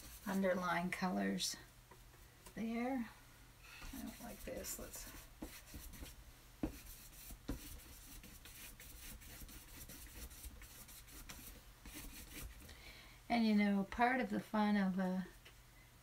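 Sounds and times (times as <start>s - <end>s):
paintbrush scratching on canvas: 0.0s - 0.7s, 3.9s - 12.7s.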